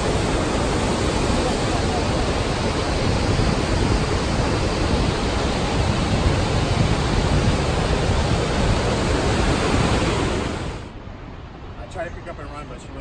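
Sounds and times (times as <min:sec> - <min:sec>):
river rapids roaring: 0:00.0 - 0:10.9.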